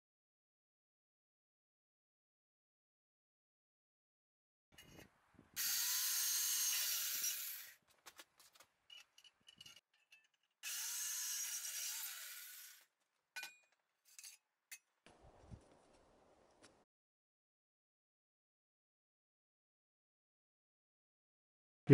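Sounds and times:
jigsaw cutting steel tube: 0:05.6 - 0:07.8, 0:10.6 - 0:12.9.

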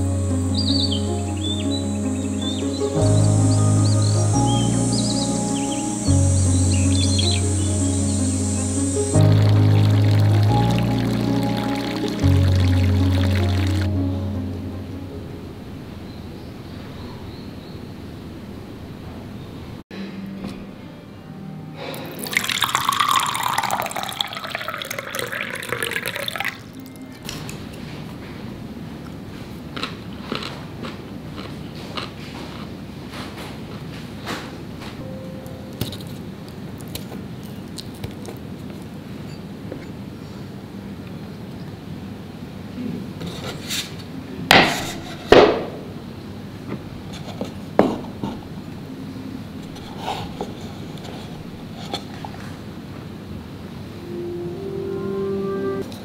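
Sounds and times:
water pouring into a glass: 0:09.0 - 0:13.9, 0:21.9 - 0:27.0.

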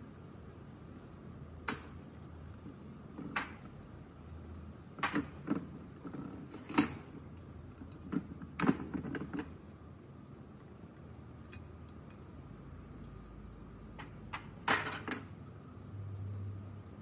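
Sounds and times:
metal parts clinking and knocking: 0:14.0 - 0:15.3.

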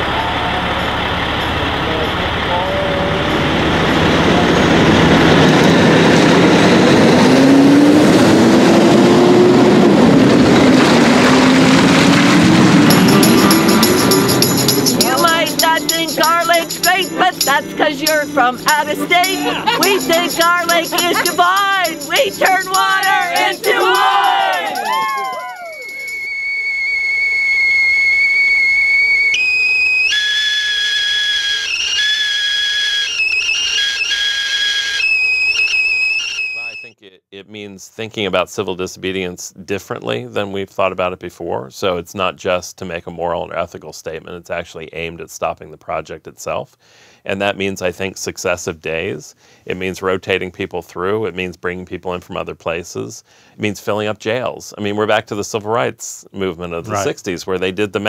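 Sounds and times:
tyre and road noise: 0:00.0 - 0:15.3
diesel truck engine accelerating: 0:00.0 - 0:24.5
high whistle-like notes: 0:12.5 - 0:37.0.

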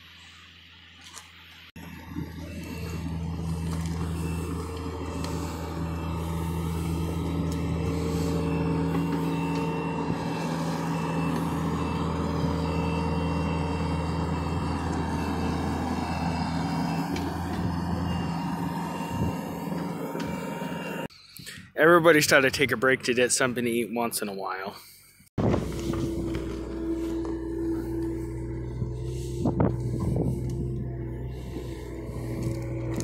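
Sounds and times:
diesel engine running: 0:00.0 - 0:22.7, 0:24.8 - 0:33.0.

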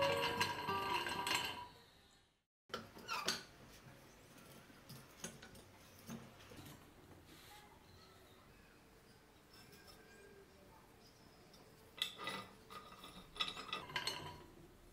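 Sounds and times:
acoustic guitar music: 0:00.0 - 0:01.4.

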